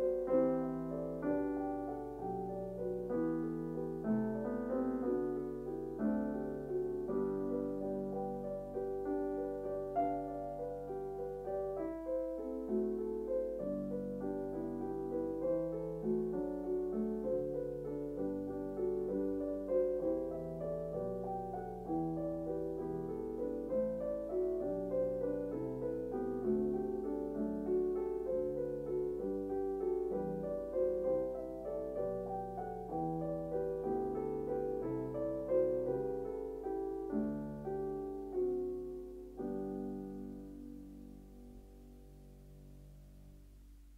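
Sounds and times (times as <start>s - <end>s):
soft piano music: 0.0s - 43.9s.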